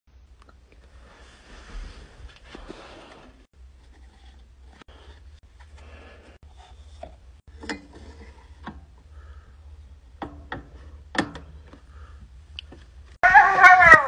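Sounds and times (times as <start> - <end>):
low steady hum: 0.1 - 13.3
phonograph clicks and knocks: 10.1 - 11.8.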